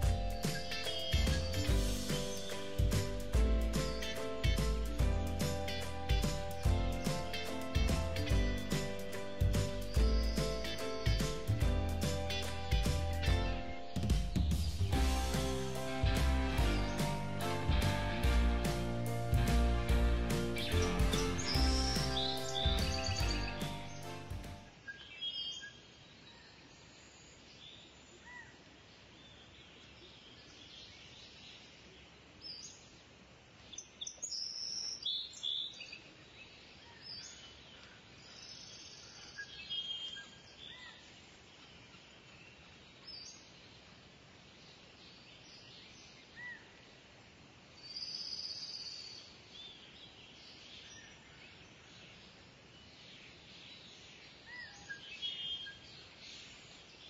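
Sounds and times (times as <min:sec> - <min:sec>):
birds chirping: 0:00.0 - 0:25.8
faint steady hiss: 0:00.0 - 0:57.0.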